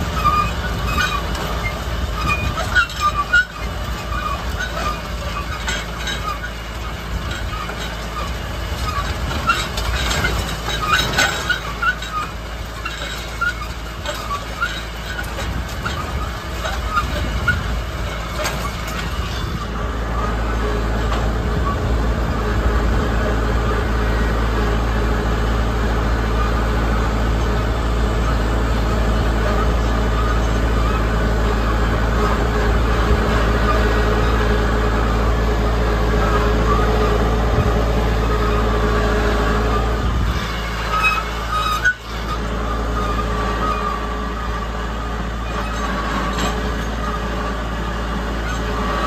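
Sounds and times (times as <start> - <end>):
tractor engine running: 0.0 - 49.0
clinks and rattles: 2.2 - 19.7.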